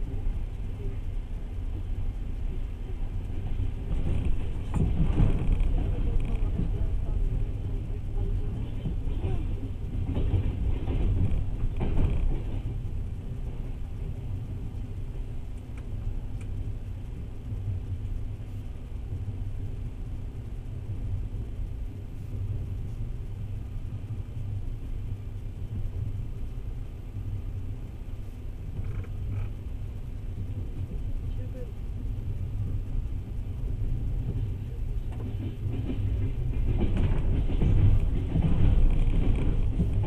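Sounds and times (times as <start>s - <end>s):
train wheels rumbling on rails: 0.0s - 40.0s.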